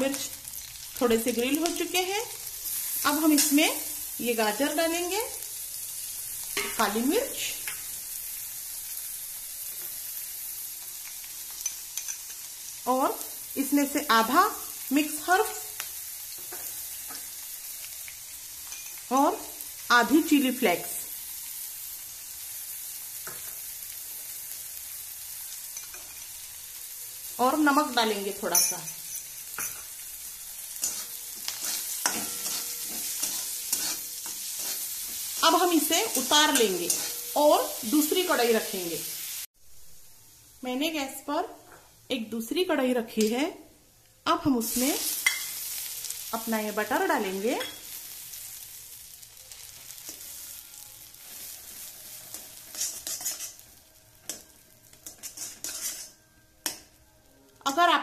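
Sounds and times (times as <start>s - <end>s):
vegetables sizzling in pan: 0.0s - 58.0s
metal spatula scraping pan: 30.8s - 37.4s, 51.2s - 56.8s.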